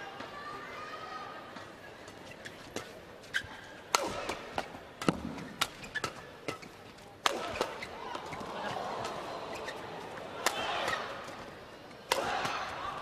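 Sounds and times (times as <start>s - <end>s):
crowd noise: 0.0s - 13.0s
rackets smacking shuttlecock: 2.7s - 9.8s, 10.4s - 13.0s.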